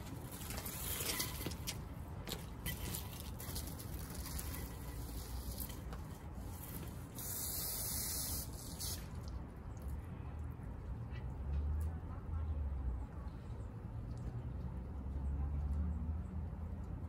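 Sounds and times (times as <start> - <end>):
water spray hissing: 7.2 - 9.3.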